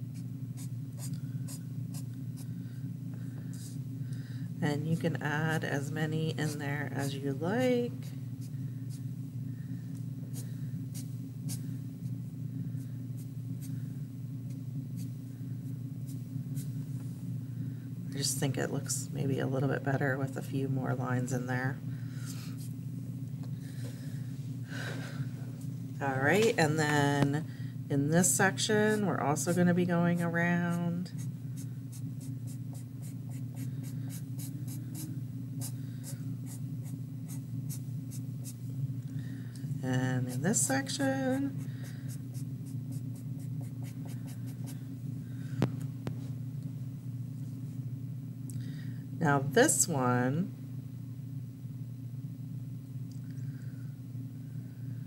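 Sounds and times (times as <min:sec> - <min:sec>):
steady low hum: 0:00.0 - 0:55.0
marker scratching on paper: 0:31.2 - 0:38.6, 0:42.1 - 0:44.8.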